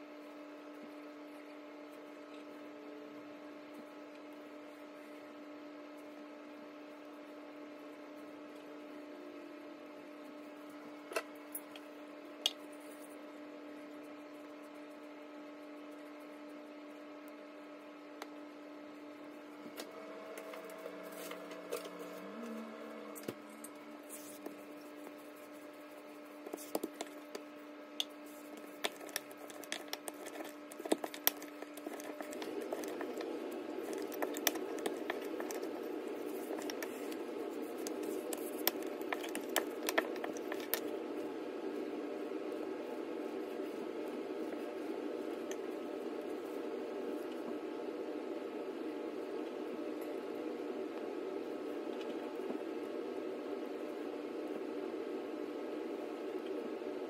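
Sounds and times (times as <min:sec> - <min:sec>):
steady low hum: 0:00.0 - 0:57.0
dough handled by hand: 0:19.6 - 0:41.0.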